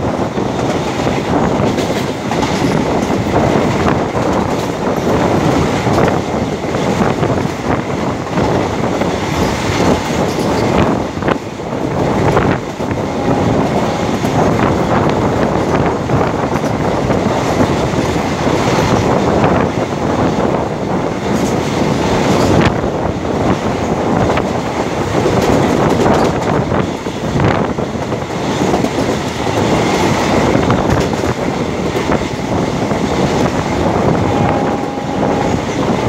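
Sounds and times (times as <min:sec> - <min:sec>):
track knocks: 0:00.0 - 0:20.4, 0:23.5 - 0:36.0
train wheels rumbling on rails: 0:00.0 - 0:36.0.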